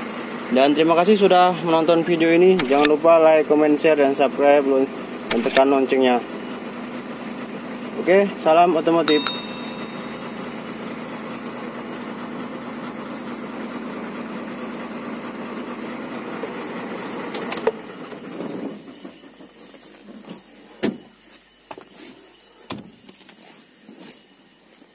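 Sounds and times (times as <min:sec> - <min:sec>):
diesel truck engine idling: 0:03.2 - 0:21.6.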